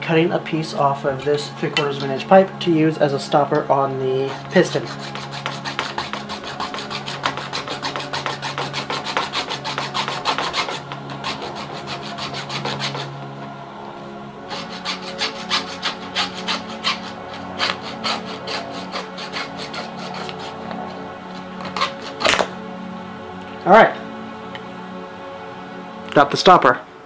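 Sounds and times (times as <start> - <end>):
hacksaw cutting plastic pipe: 4.3 - 13.1, 14.5 - 22.5.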